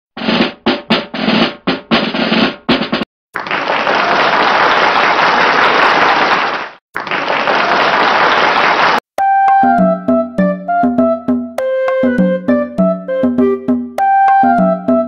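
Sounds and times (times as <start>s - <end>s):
snare drum hits: 0.2s - 3.1s
snare drum roll: 0.2s - 3.1s.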